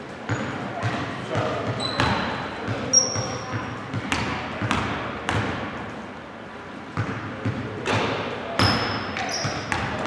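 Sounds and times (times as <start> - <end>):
basketball bouncing on wooden floor: 0.3 - 5.6, 7.0 - 10.0
shoe squeak: 1.7 - 3.6, 8.6 - 9.8.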